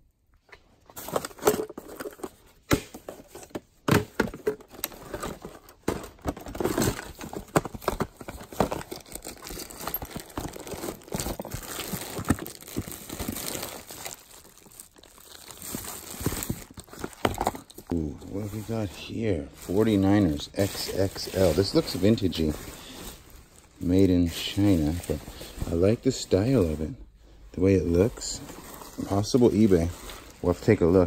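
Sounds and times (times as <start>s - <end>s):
items clicking and knocking: 0.4s - 14.1s, 15.5s - 17.9s
plastic bags crinkling: 4.4s - 27.0s, 27.6s - 31.0s.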